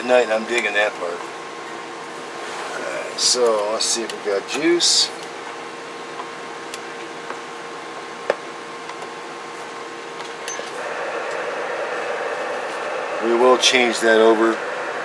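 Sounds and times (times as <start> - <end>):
radio electronic hiss: 10.8 - 15.0.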